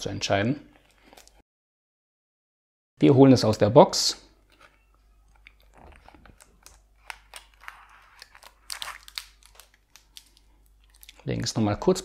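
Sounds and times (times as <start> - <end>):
cardboard and plastic film crinkling: 5.7 - 11.5.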